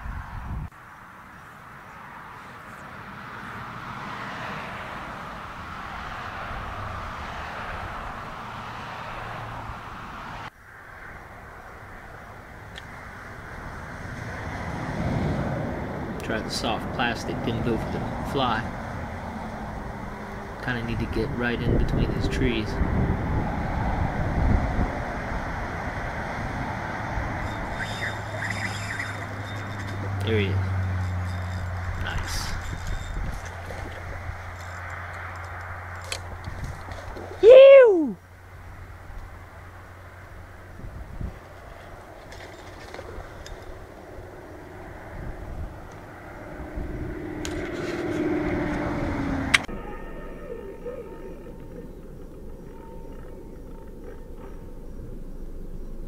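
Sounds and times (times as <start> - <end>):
wind buffeting microphone: 0.0 - 0.7, 16.8 - 37.5, 40.4 - 49.8
outdoor background noise: 0.0 - 56.0
fishing reel whirring: 27.0 - 37.4.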